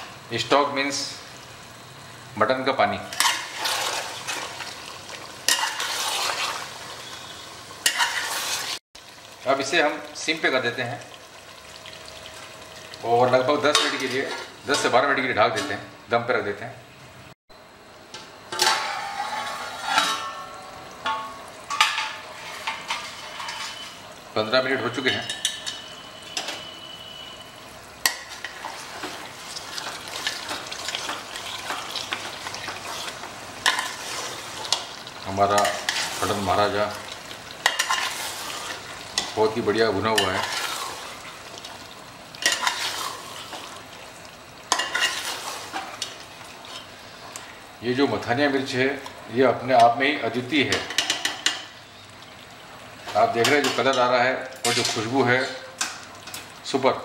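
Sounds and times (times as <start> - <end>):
curry sizzling: 0.0 - 57.0
faint hiss of food cooking: 0.0 - 57.0
metal spatula scraping a pot: 3.1 - 4.5, 5.5 - 8.8, 18.6 - 20.6, 22.1 - 24.0, 35.6 - 36.4, 37.6 - 39.3, 40.2 - 41.0, 42.4 - 43.7, 44.7 - 46.0
metal clanking against cooking pot: 18.5 - 23.8, 25.2 - 26.6, 50.7 - 51.7.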